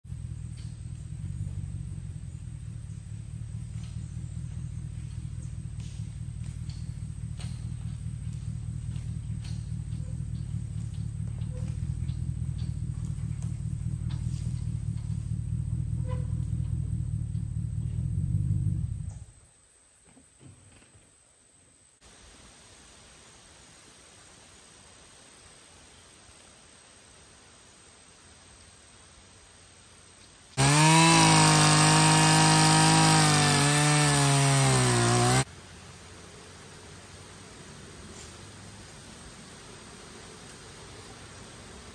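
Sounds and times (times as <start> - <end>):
truck engine low rumble: 0.0 - 19.4, 30.6 - 39.0
chainsaw cutting into log: 30.6 - 35.5.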